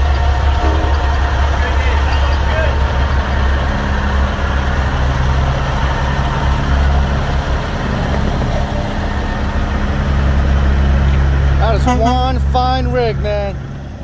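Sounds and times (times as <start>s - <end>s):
truck diesel engine passing: 0.0s - 14.0s.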